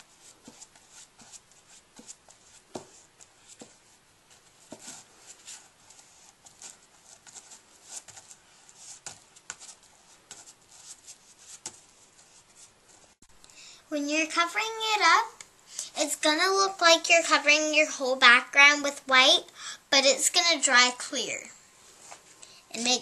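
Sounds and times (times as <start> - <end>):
brush scratchy strokes: 0.0 - 13.2.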